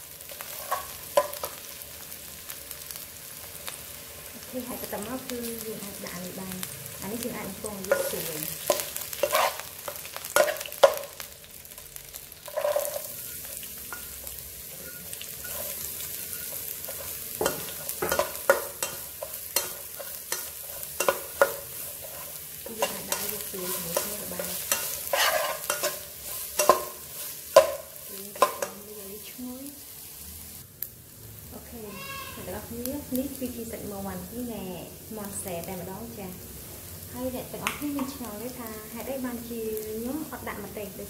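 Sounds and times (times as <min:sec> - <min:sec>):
frying sizzle: 0:00.0 - 0:41.0
spatula knocking and scraping wok: 0:00.3 - 0:01.7, 0:07.7 - 0:11.2, 0:12.4 - 0:28.9, 0:37.6 - 0:38.3.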